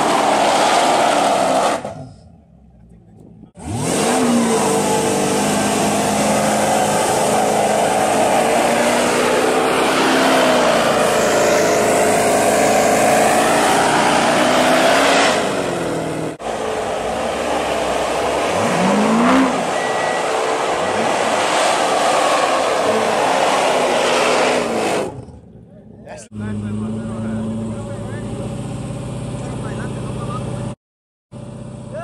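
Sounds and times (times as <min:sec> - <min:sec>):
car engine revving: 0:00.0 - 0:30.8
tyres screeching: 0:03.7 - 0:15.6.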